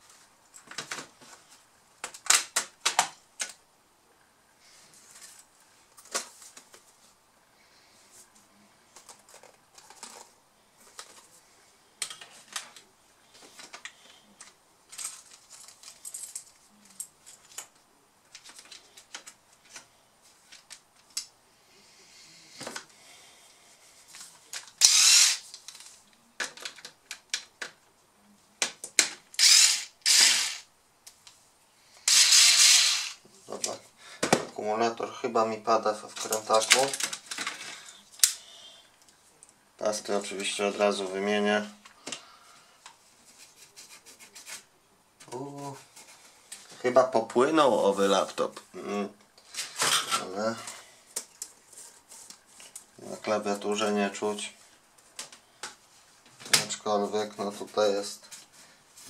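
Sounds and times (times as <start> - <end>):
plastic parts clicking and tapping: 18.3 - 19.9, 24.5 - 27.8
electric screwdriver whirring: 24.8 - 25.4, 29.4 - 30.7, 32.1 - 33.2.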